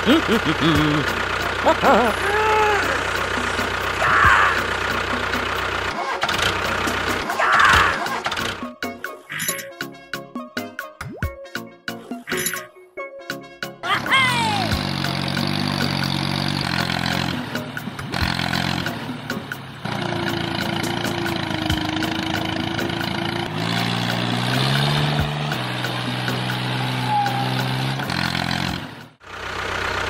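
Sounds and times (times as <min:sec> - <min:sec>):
engine idling and revving: 0:00.0 - 0:09.6, 0:14.0 - 0:30.0.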